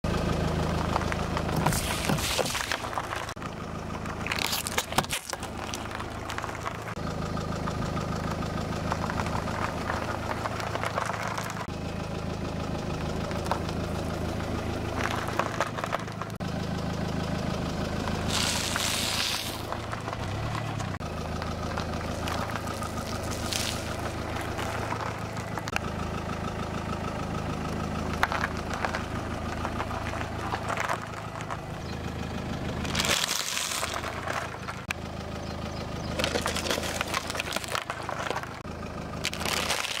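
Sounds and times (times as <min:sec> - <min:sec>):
car engine idling: 0:00.0 - 0:40.0
tyre crushing cartons: 0:01.4 - 0:03.4, 0:04.2 - 0:06.8, 0:39.2 - 0:40.0.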